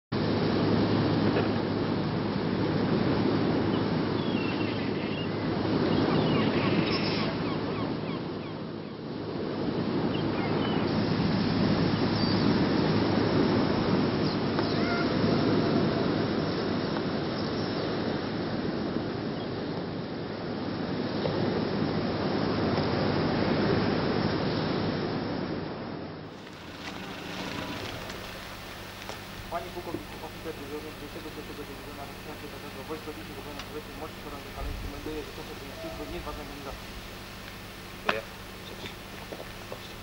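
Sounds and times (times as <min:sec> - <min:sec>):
wind buffeting microphone: 0:24.9 - 0:40.0.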